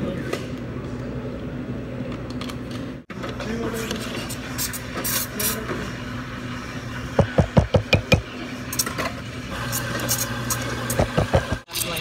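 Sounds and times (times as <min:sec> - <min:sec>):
espresso machine hum: 0:05.6 - 0:11.7.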